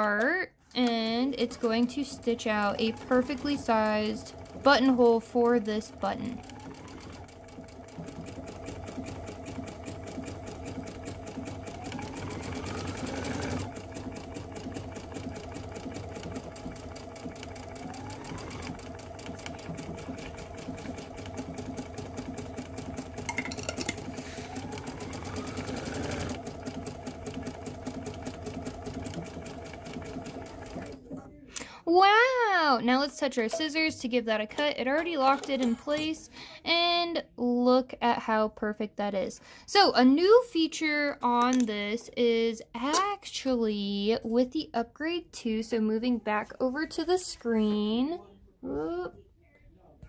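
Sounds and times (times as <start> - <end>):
sewing machine stitching: 0.8 - 31.3, 33.3 - 36.3
sewing machine whine: 1.4 - 31.1.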